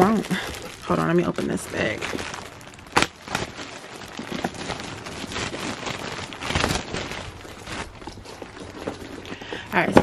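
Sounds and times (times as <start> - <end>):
plastic bag crinkling: 0.0 - 10.0
plastic bag snap: 2.0 - 4.7.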